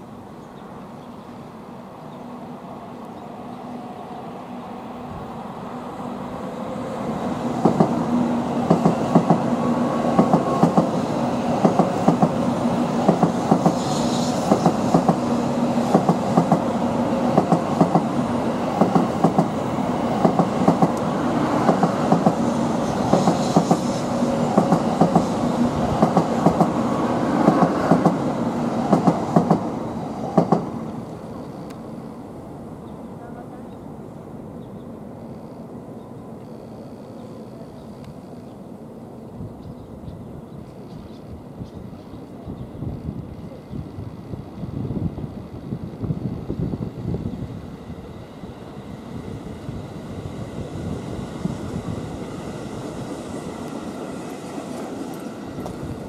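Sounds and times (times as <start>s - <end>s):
train steady hum: 0.0s - 56.0s
train wheels clacking over track: 7.5s - 30.8s, 51.7s - 56.0s.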